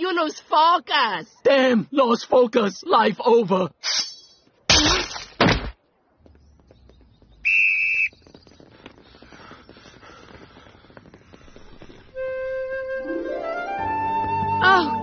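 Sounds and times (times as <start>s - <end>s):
whistle blast: 7.4s - 8.2s.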